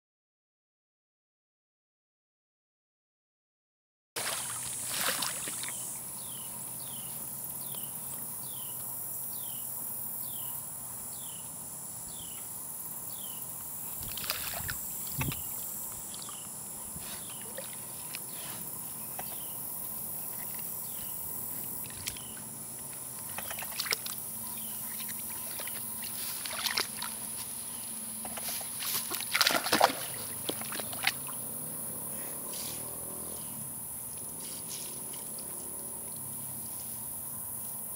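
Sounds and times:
animal splashing in water: 4.2 - 5.9, 14.0 - 15.5, 17.2 - 19.5, 21.6 - 27.5, 28.2 - 31.6.

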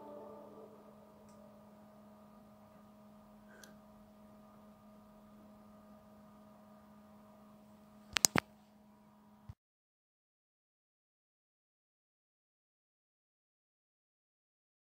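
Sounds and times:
ambient music held tones: 0.0 - 2.6
faint low hum: 0.0 - 9.6
sharp click: 8.1 - 8.5.

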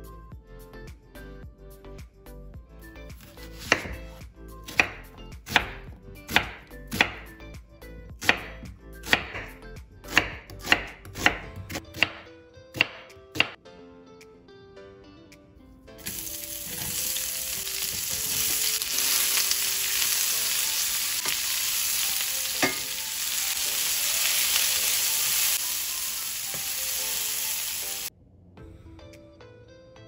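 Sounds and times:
knife chopping onion on board: 3.2 - 7.3, 8.2 - 13.6.

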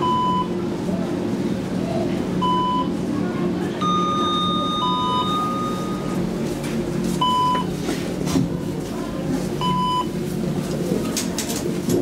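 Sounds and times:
elevator signal beeping: 0.0 - 0.6, 2.4 - 3.0, 3.8 - 6.3, 7.2 - 7.7, 9.6 - 10.2
longer steady tone: 2.4 - 3.0, 3.8 - 6.2.

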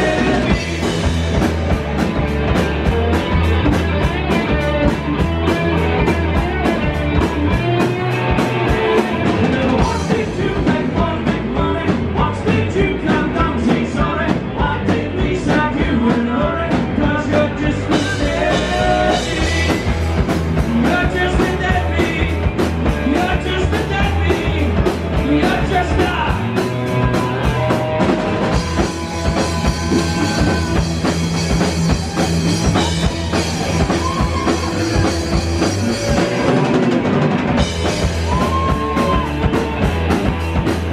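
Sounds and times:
drum kit beat: 0.0 - 40.9
electric guitars: 0.0 - 40.9.

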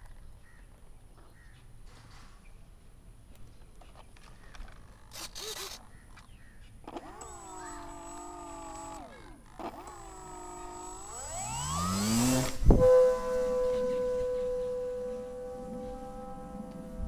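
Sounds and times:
model plane motor and propeller: 4.8 - 5.8, 6.8 - 17.0.

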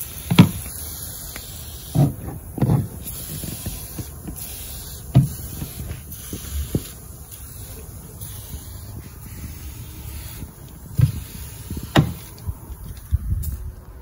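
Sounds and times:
aerosol can spraying hiss: 0.0 - 12.9
short thumps: 5.1 - 5.8, 10.9 - 12.4.

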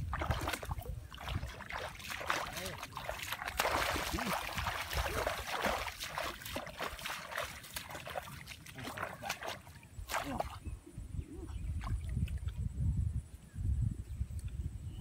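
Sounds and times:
splashing footsteps in water: 0.0 - 10.6
hands sloshing muddy water: 0.0 - 10.7.

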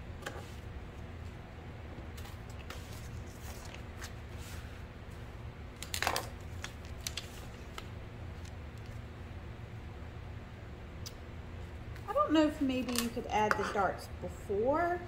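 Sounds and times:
steady low hum: 0.0 - 15.0
paper rustling: 2.2 - 4.8, 5.8 - 8.5.

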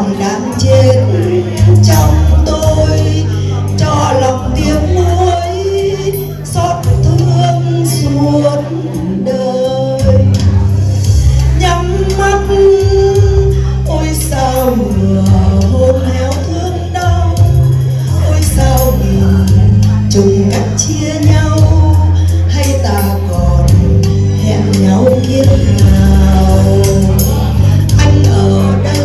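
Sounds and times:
electronic keyboard accompaniment: 0.0 - 29.0
woman singing ballad into microphone: 0.0 - 29.0.

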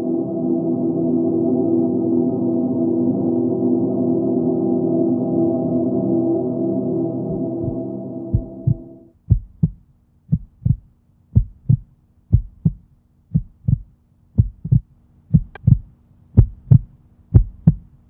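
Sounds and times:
faint low hum: 0.0 - 18.0
heartbeat thumps: 7.3 - 17.9.

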